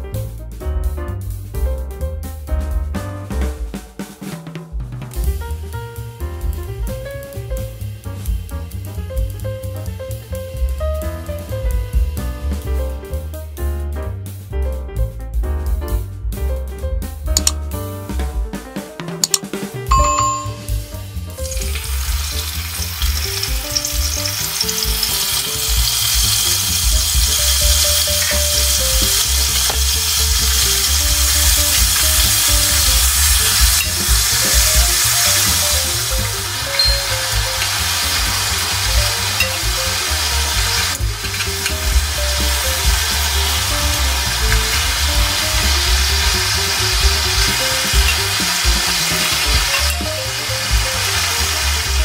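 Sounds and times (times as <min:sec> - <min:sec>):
chicken sizzling in hot oil: 0:05.3 - 0:13.4, 0:20.0 - 0:52.0
short chime: 0:19.9 - 0:20.8, 0:36.8 - 0:37.1
metal tongs turning meat: 0:21.6 - 0:32.0, 0:36.7 - 0:39.8, 0:40.5 - 0:42.6.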